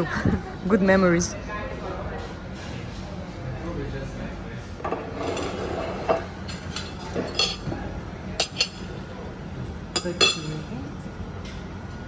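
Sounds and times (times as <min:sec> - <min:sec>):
low background hum: 0:00.0 - 0:12.0
cutlery clinking against dishes: 0:04.8 - 0:07.7, 0:08.4 - 0:08.9, 0:10.0 - 0:10.7.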